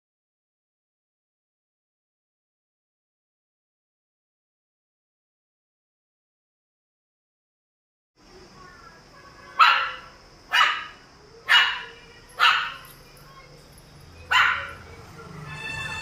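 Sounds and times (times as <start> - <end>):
dog barking: 9.5 - 13.0, 14.3 - 14.9.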